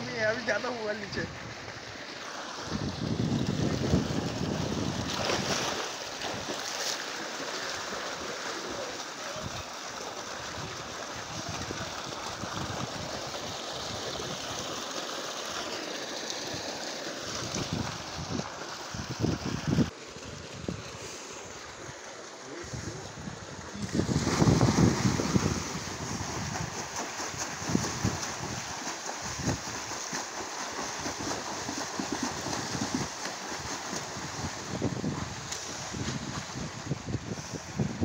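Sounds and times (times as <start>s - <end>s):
water rushing in a tank: 0.0s - 38.0s
splashing of person wading: 3.4s - 13.3s, 23.8s - 36.7s.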